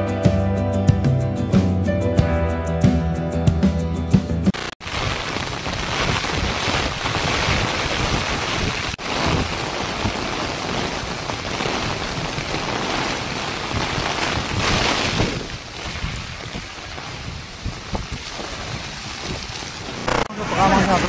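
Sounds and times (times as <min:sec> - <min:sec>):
torrential rain pouring: 0:04.6 - 0:21.0
wind buffeting microphone: 0:04.9 - 0:20.1.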